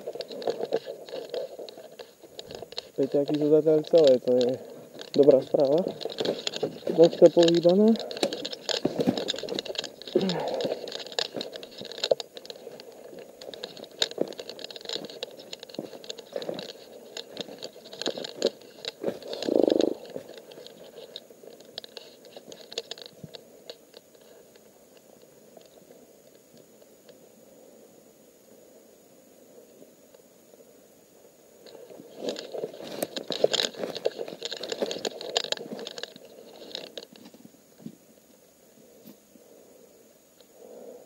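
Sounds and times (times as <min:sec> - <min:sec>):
footsteps crunching dry twigs: 0:00.0 - 0:24.2, 0:31.7 - 0:38.0.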